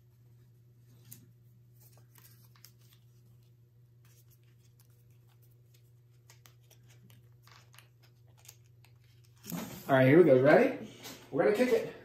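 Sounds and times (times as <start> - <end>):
small parts clicking and rustling: 4.1 - 9.6.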